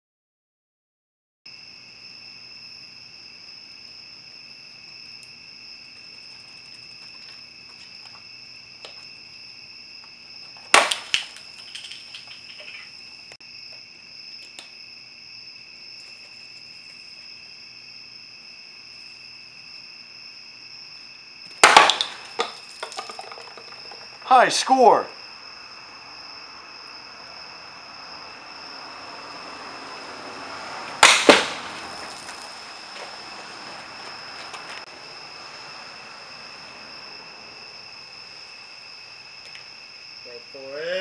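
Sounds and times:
night insects trilling: 1.5 - 41.0
plastic bottles bursting: 10.6 - 12.5, 21.5 - 24.2, 31.0 - 32.5.

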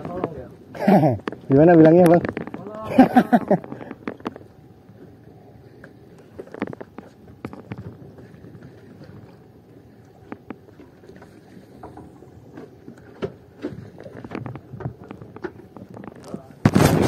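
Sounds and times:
water lapping against boat: 0.0 - 17.0
knocks against hull: 11.8 - 17.0.

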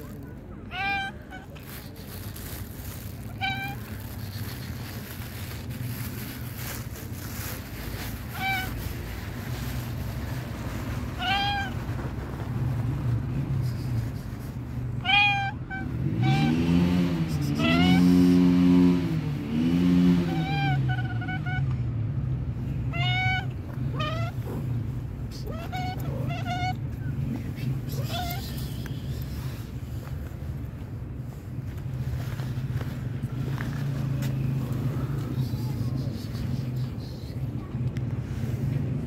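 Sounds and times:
cat meowing: 0.6 - 1.5, 3.3 - 3.8, 8.3 - 8.8, 11.2 - 11.8, 15.0 - 16.5, 22.9 - 24.5, 25.4 - 26.8, 28.0 - 28.4.

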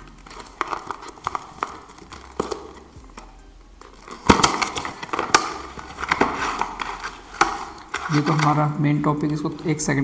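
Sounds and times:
packaging rustling clicks: 0.0 - 9.8.

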